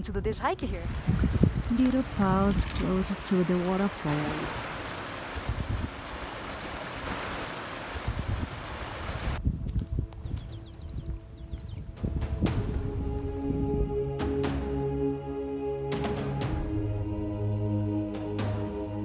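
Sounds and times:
wind rumbling on microphone: 0:00.0 - 0:14.1
stream splashing over stones: 0:00.8 - 0:09.4
bird high falling chirps: 0:10.2 - 0:11.9.

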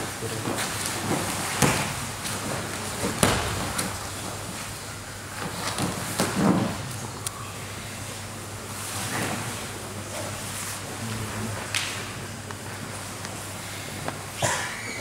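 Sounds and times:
dull thumps on mat: 0:03.0 - 0:04.0.

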